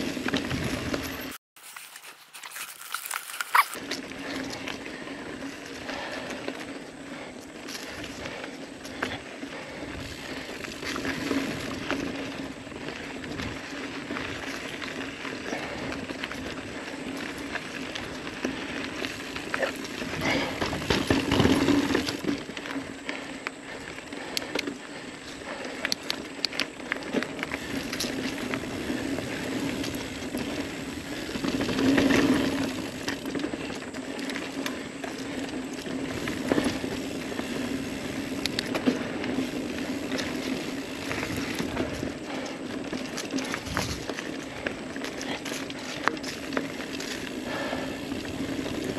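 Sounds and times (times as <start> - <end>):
bike clicks and rattles: 0.0 - 48.9
bike tyres on dirt trail: 0.0 - 48.9.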